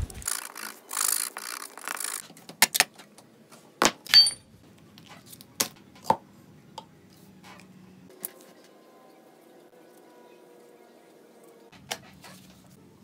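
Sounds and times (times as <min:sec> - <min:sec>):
short metallic ring: 0:04.2 - 0:04.4.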